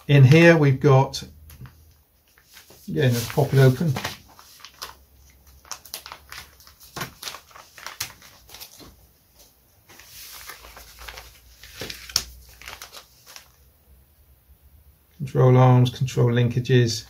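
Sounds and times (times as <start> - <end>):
plastic bag crinkling: 1.6 - 9.0, 9.9 - 13.6.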